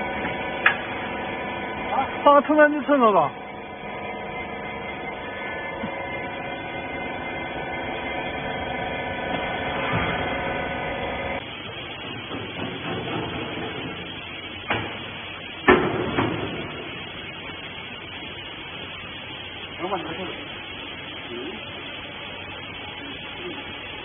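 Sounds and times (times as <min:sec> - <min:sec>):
hydraulic power unit humming: 0:00.0 - 0:24.0
machine knock and clunk: 0:11.7 - 0:16.8.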